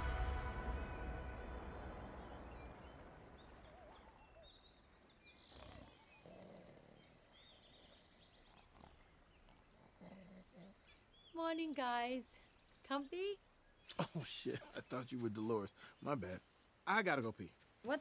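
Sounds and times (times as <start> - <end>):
music: 0.0 - 3.0
soft low sounds: 0.0 - 4.8
bird chirps: 0.0 - 6.4.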